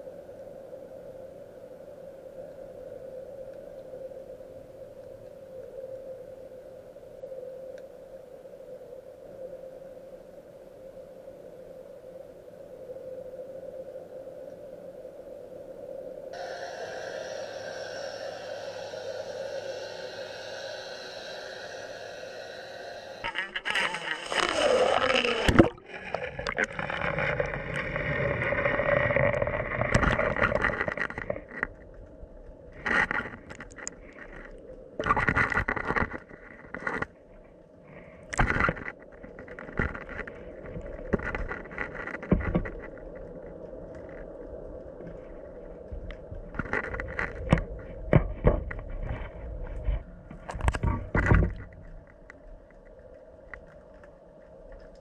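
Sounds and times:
faint steady hum: 0:00.0 - 0:55.0
water rushing splash: 0:22.1 - 0:31.3.

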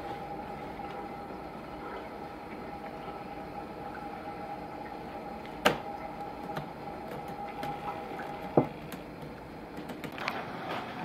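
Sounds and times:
steady hum: 0:00.0 - 0:11.0
hand slapping laptop keyboard: 0:09.8 - 0:10.2.

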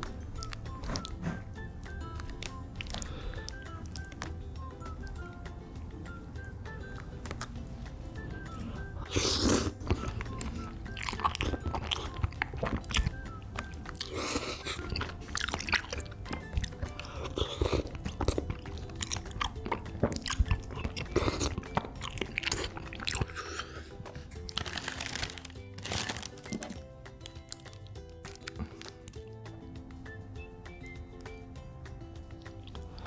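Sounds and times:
chewing: 0:00.4 - 0:04.4, 0:08.4 - 0:29.2, 0:32.3 - 0:33.0
wet slurping of noodles: 0:09.0 - 0:10.0.

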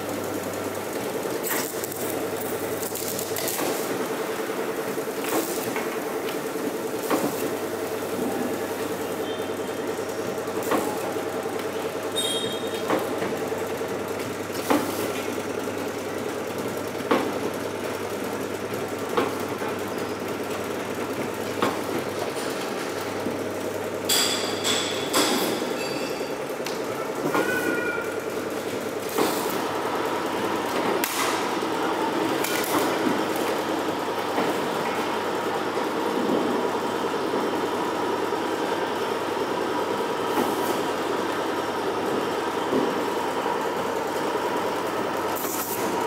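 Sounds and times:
clattering with metallic ringing: 0:24.1 - 0:26.4
machine motor hum: 0:26.4 - 0:46.0.

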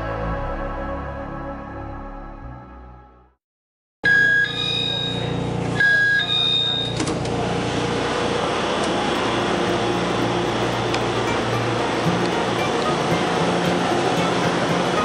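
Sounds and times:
electric train humming: 0:07.4 - 0:15.0.

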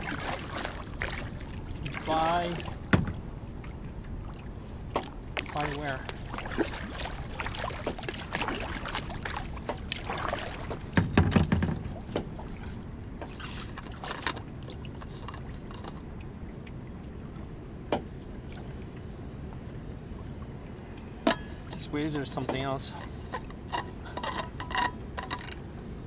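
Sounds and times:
paddle strokes splashing: 0:00.0 - 0:16.0
steady wash of water: 0:00.0 - 0:24.7.

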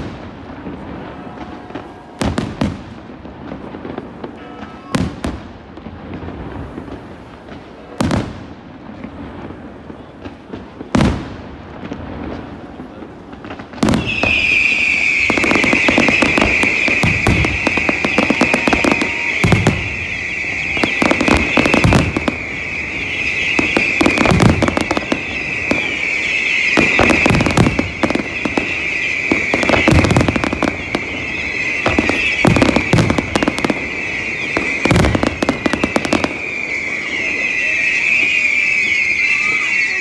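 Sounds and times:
fireworks bangs and crackles: 0:00.0 - 0:40.0
high-pitched whistling hiss: 0:14.0 - 0:40.0.

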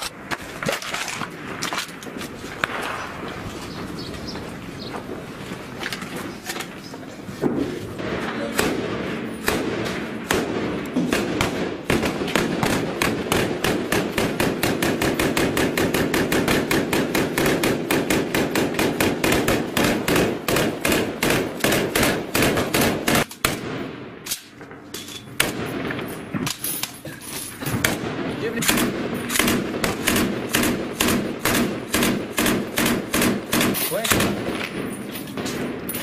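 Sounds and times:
rapid automatic gunfire: 0:08.0 - 0:23.8, 0:27.8 - 0:34.6.

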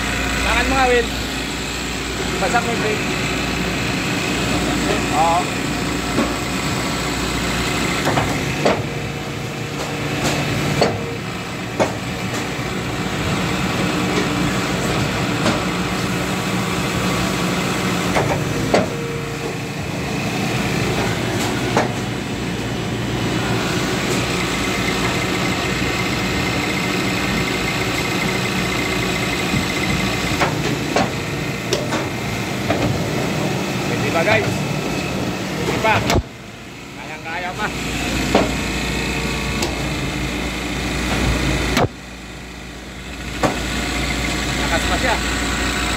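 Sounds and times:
sharp mechanical clicks and knocks: 0:08.0 - 0:08.9, 0:09.7 - 0:11.1, 0:18.1 - 0:19.0, 0:20.9 - 0:22.1, 0:29.5 - 0:33.0, 0:35.7 - 0:36.3.

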